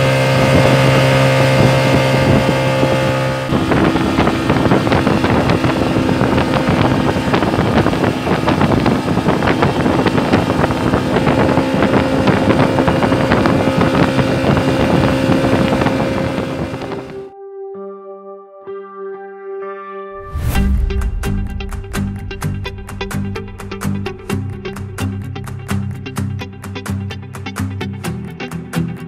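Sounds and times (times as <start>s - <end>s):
water rushing past hull: 0.0s - 17.0s
outboard motor running: 0.0s - 17.3s, 22.3s - 27.8s
wind on microphone: 0.0s - 17.3s, 20.2s - 26.3s.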